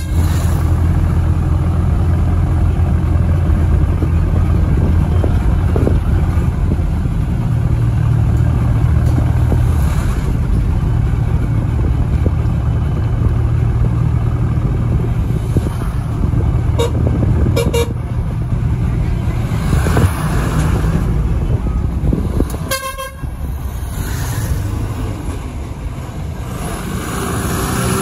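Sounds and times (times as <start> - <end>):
vehicle engine rumble: 0.0 - 28.0
vehicle horns tooting: 16.7 - 18.0, 22.6 - 23.4.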